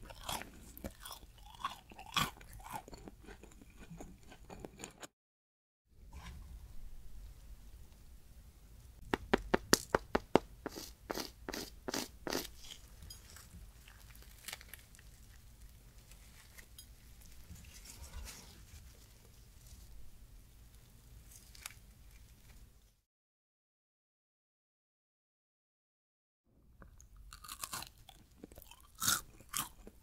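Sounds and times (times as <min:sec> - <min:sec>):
bread crust crackling: 0:11.9 - 0:17.9.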